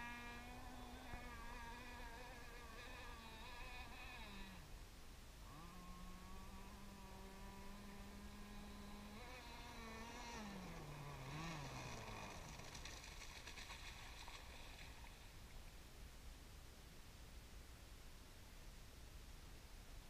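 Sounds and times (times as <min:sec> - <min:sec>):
distant boat engine whine: 0:00.0 - 0:15.4.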